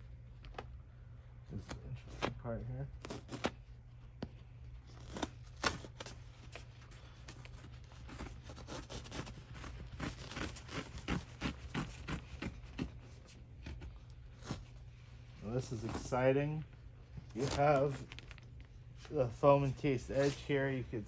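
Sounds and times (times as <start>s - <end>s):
steady low hum: 0.0s - 21.0s
fabric ripping and tearing: 3.0s - 3.6s, 4.9s - 6.1s, 8.0s - 13.0s, 17.3s - 18.4s.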